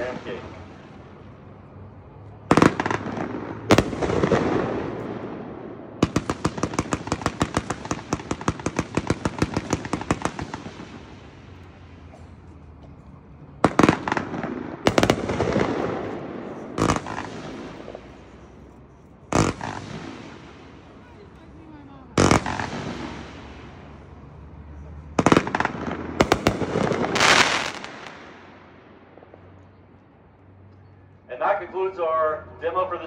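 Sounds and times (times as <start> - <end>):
fireworks bangs: 0.0 - 1.6, 2.2 - 24.2, 24.8 - 29.6
fast run of firework shots: 2.5 - 12.1, 13.6 - 18.4, 19.3 - 21.3, 22.2 - 24.0, 25.1 - 28.6.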